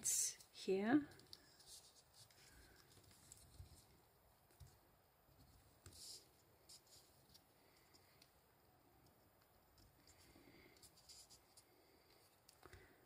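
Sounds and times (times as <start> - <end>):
pen scratching paper: 4.6 - 7.4, 9.8 - 11.7.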